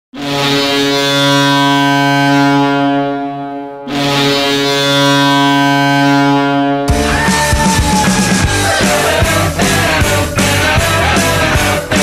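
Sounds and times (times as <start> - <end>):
goal horn blasts: 0.2 - 8.0.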